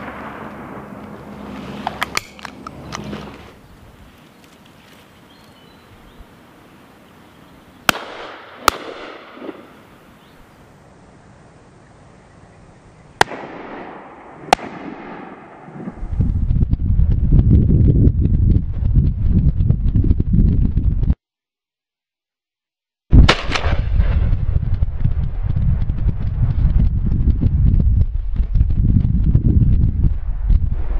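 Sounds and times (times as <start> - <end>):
shotgun shots with echo: 7.9 - 9.8, 13.2 - 15.9, 23.2 - 24.2.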